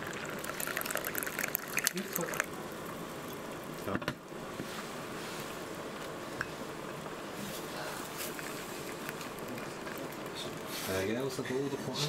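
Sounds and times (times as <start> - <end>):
tea trickling into a glass: 0.0 - 2.5.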